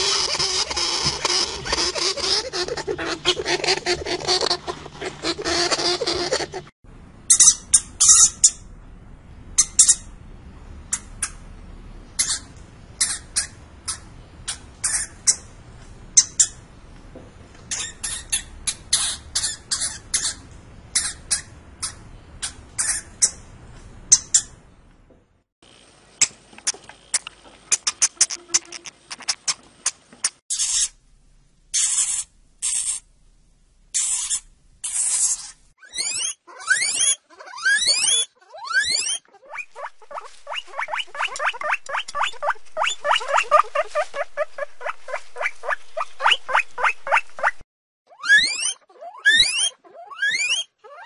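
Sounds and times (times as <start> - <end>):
hamster squeaking: 0.0 - 6.7, 7.3 - 8.6, 12.2 - 15.5, 16.2 - 16.6, 17.7 - 23.4, 24.1 - 24.6, 27.7 - 31.0, 31.7 - 33.0, 33.9 - 51.0
faint background hiss: 30.9 - 35.7.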